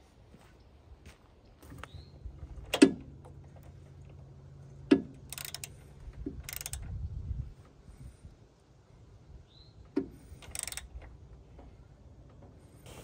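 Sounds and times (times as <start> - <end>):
ratchet wrench clicking: 5.2 - 6.9, 10.4 - 11.1.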